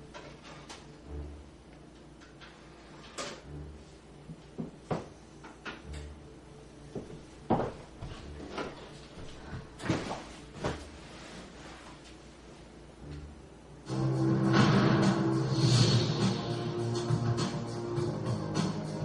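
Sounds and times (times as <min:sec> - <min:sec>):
footsteps on wooden floor: 0:06.9 - 0:11.0.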